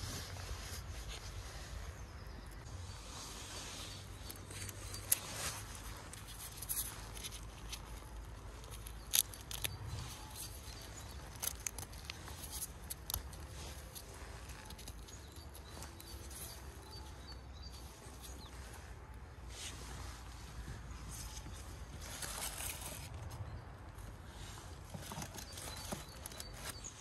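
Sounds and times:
soft tearing and rustling: 0:02.6 - 0:27.0
mushrooms snapping: 0:06.1 - 0:16.0.

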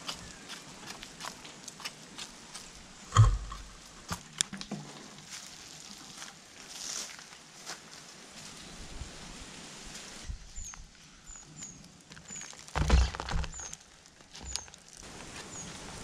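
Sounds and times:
rustling of seedlings on plastic: 0:04.7 - 0:08.7, 0:09.9 - 0:16.0
water pouring onto soil: 0:04.9 - 0:07.2.

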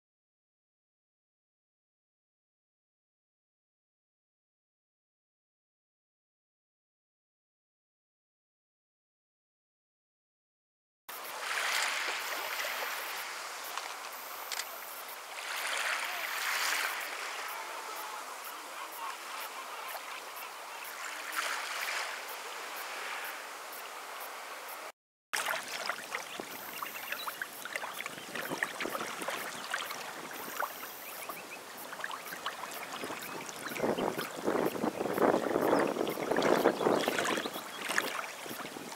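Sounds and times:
water lapping: 0:11.1 - 0:38.9
water splashing: 0:11.1 - 0:38.9.

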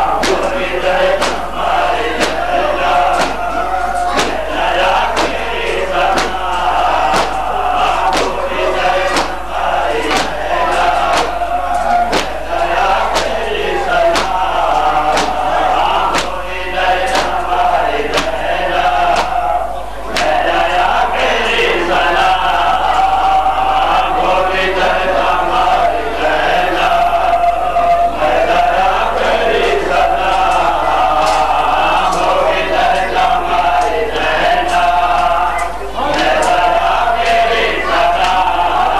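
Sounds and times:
men chanting in unison: 0:00.0 - 0:38.9
hands beating on chests: 0:00.2 - 0:16.4, 0:17.1 - 0:17.5, 0:18.1 - 0:18.4.

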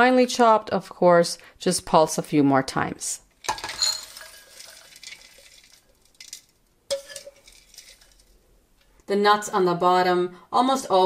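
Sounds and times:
nut pieces pattering onto glass: 0:03.4 - 0:08.4.

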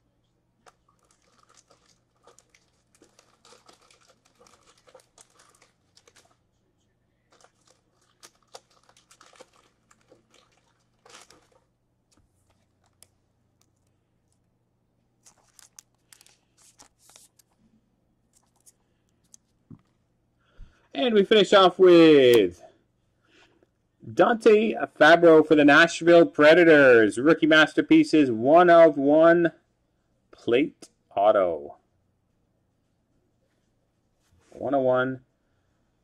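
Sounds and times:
wrapper crinkling and tearing: 0:00.6 - 0:06.4, 0:07.3 - 0:11.7, 0:15.2 - 0:17.6
cards being handled: 0:15.2 - 0:17.6, 0:18.3 - 0:19.9.

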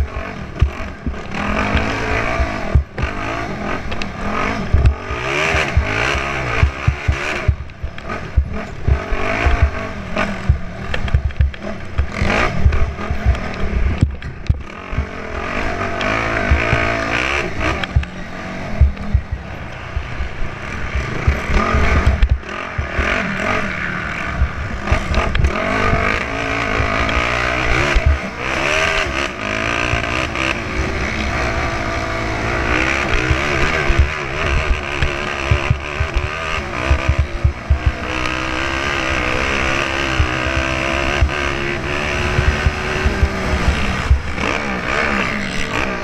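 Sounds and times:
thumps from bumps: 0:00.0 - 0:03.2, 0:03.9 - 0:15.1, 0:16.0 - 0:18.2, 0:18.8 - 0:20.1, 0:21.1 - 0:23.1, 0:26.9 - 0:28.3, 0:32.7 - 0:44.5
motorcycle engine revving: 0:00.0 - 0:46.0.

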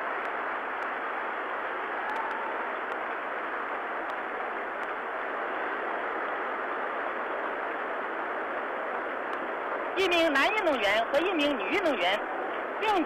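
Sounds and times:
stadium crowd cheering and clapping: 0:00.0 - 0:06.6.

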